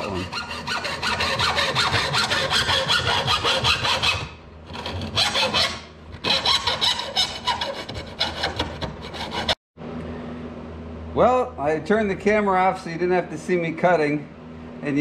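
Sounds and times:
hacksaw cutting metal: 0.0s - 9.6s.

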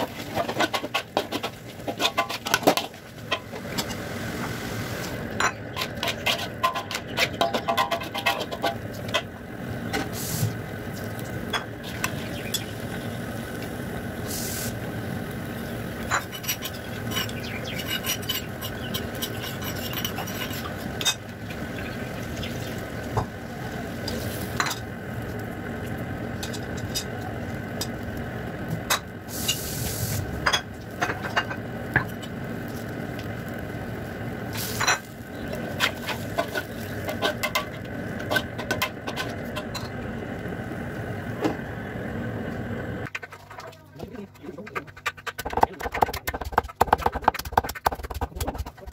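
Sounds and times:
metal spatula scraping a wok: 0.0s - 4.0s, 5.0s - 9.1s, 16.0s - 21.3s, 34.6s - 39.9s
food sizzling: 0.0s - 46.5s.

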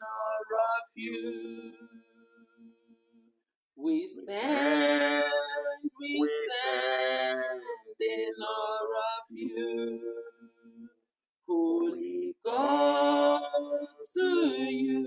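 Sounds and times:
man and woman singing: 3.9s - 10.0s, 11.5s - 15.0s.

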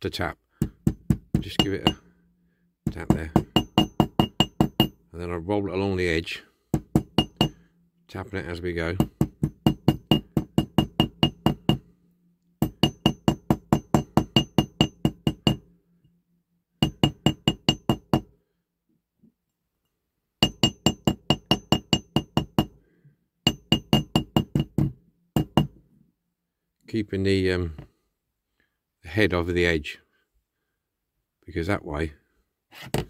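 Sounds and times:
small hammer tapping metal: 0.6s - 2.1s, 2.9s - 5.0s, 6.7s - 7.6s, 8.9s - 11.9s, 12.6s - 15.7s, 16.8s - 18.3s, 20.4s - 22.8s, 23.5s - 25.8s.

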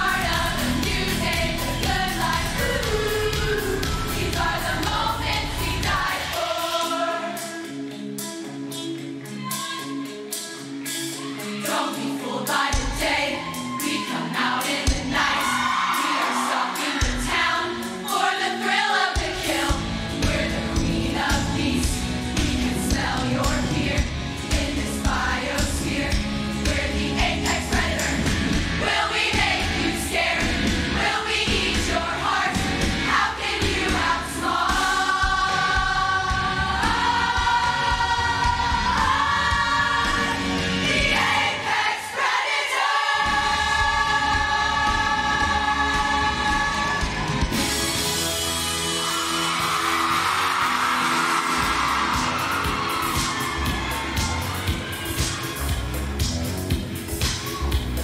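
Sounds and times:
pop backing track with drums: 0.0s - 7.6s, 19.2s - 41.5s, 51.4s - 58.0s
women's chorus singing: 0.0s - 7.6s, 11.4s - 47.4s.

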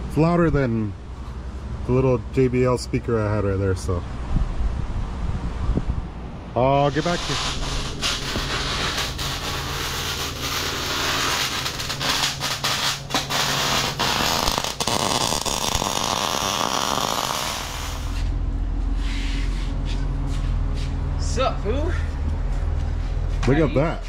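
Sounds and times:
steady low hum: 0.0s - 24.0s
arc welding crackling hiss: 6.8s - 18.3s.

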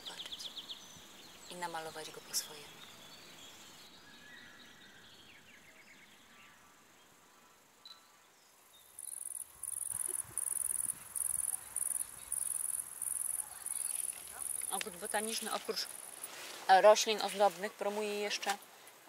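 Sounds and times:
faint bird chirps: 0.0s - 16.3s
cricket stridulating: 8.6s - 16.5s.

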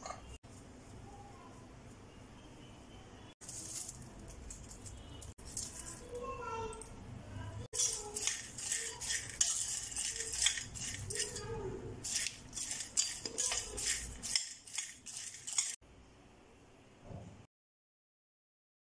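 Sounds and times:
metal spoon clinking on ceramic bowl: 7.8s - 15.8s.

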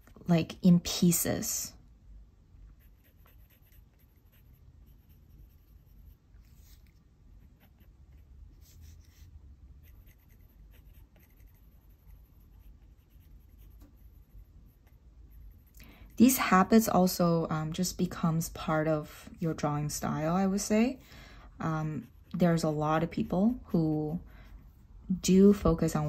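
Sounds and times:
pencil scratching on paper: 2.7s - 16.4s, 21.9s - 24.8s.

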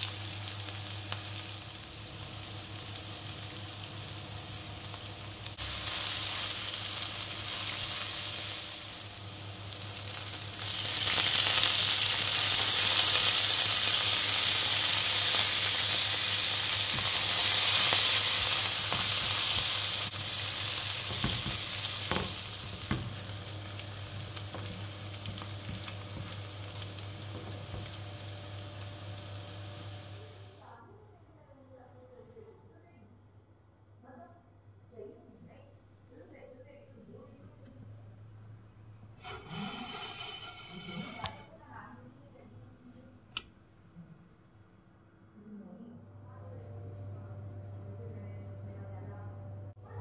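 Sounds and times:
onions sizzling in hot oil: 0.0s - 30.6s, 39.2s - 41.5s
spatula knocking on pan: 21.0s - 28.0s.

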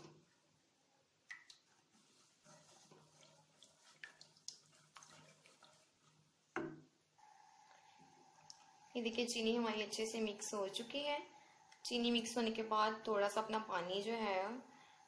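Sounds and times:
liquid sloshing: 1.4s - 6.4s
spatula scraping a pan: 1.9s - 6.3s.

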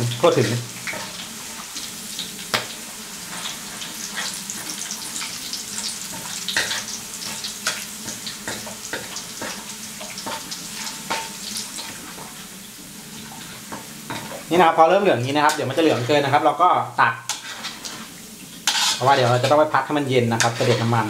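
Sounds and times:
garlic sizzling in hot oil: 0.0s - 21.0s
crackles and clicks of stirring: 6.1s - 12.4s, 13.3s - 14.5s, 17.3s - 19.7s.

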